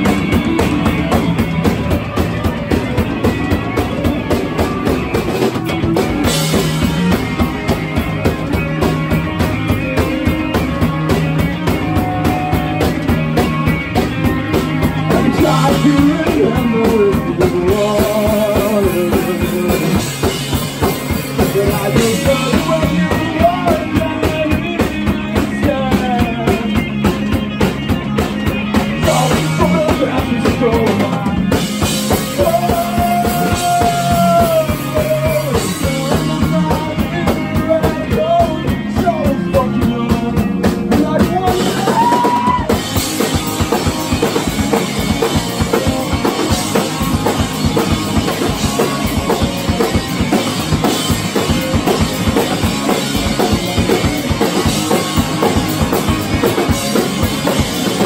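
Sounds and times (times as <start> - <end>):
driving steady drumbeat: 0.0 - 58.0
rising and falling melody line: 0.0 - 58.0
rock band playing live: 0.0 - 58.0.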